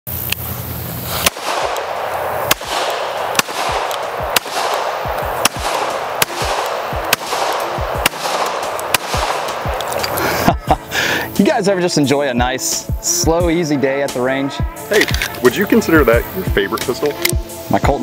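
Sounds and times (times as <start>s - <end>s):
pistol shots: 1.1s - 10.2s.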